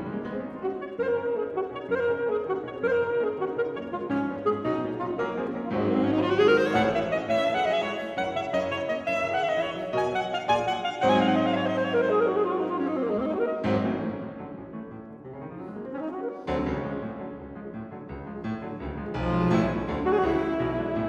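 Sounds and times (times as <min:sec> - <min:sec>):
grand piano playing: 0:00.0 - 0:21.0
alto saxophone: 0:00.2 - 0:14.3, 0:19.2 - 0:21.0.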